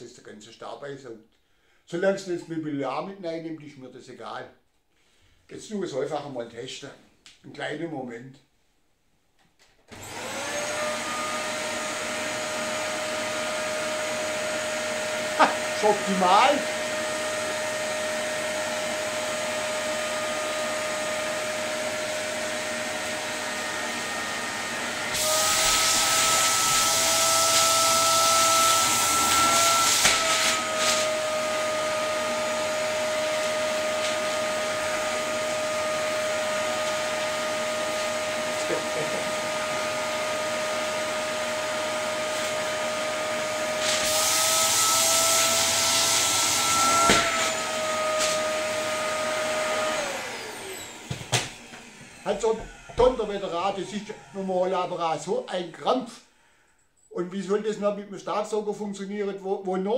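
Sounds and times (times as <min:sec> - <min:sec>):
vacuum cleaner motor whine: 0:09.9 - 0:55.1.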